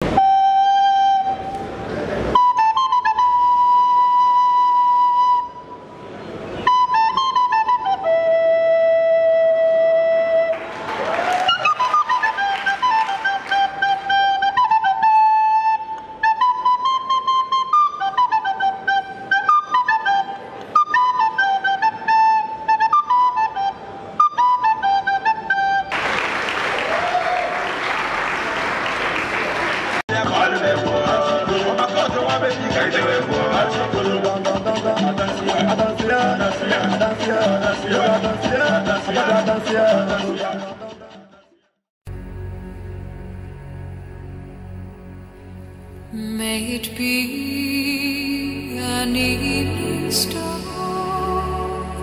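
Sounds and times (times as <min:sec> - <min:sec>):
end-blown flute melody: 0:00.0 - 0:05.9, 0:06.6 - 0:27.6
audience applause: 0:10.5 - 0:14.2, 0:25.9 - 0:30.1.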